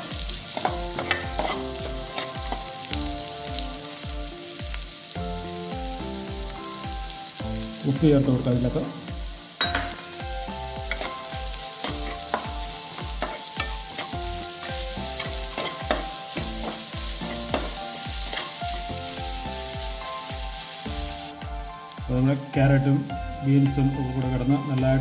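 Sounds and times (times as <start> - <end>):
background music with beat: 0.0 - 25.0
vegetables sizzling in oil: 0.0 - 25.0
spatula stirring and scraping: 0.1 - 2.8, 10.8 - 18.8.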